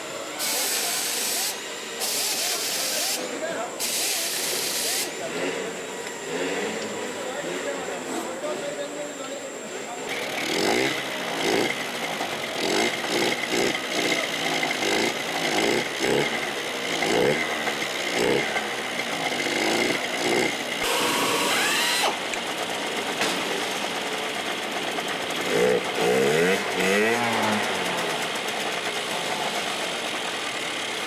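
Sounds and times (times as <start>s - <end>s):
pneumatic tools whirring: 0.3s - 5.2s, 10.1s - 22.5s
air hiss: 0.4s - 5.1s.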